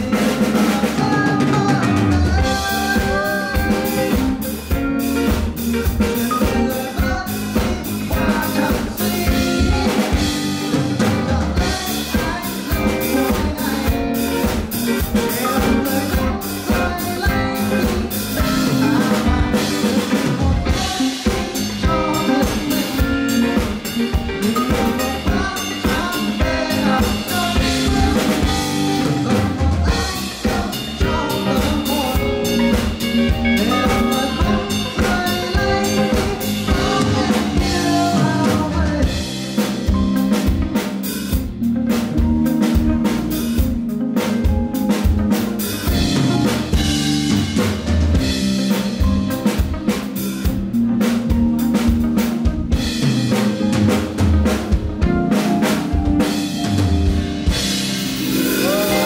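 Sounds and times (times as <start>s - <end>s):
man singing: 0.0s - 40.4s, 58.2s - 59.0s
drum kit steady beat: 0.0s - 59.0s.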